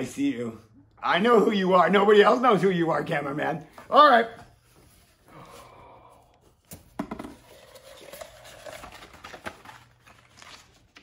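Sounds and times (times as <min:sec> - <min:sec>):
paper rustling and crinkling: 0:07.4 - 0:11.0.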